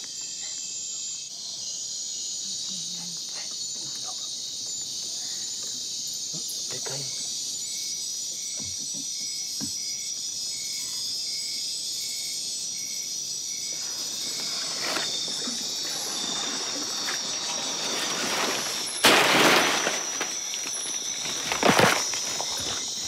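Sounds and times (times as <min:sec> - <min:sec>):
insects buzzing and trilling: 0:00.0 - 0:23.0
pulsing insect call: 0:00.0 - 0:23.0
rustle of leaves and branches: 0:13.4 - 0:23.0
footsteps: 0:13.8 - 0:23.0.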